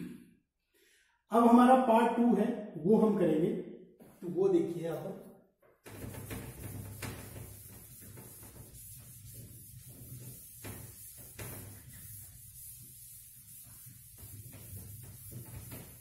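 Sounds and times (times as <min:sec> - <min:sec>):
duster rubbing whiteboard: 0:05.8 - 0:16.0.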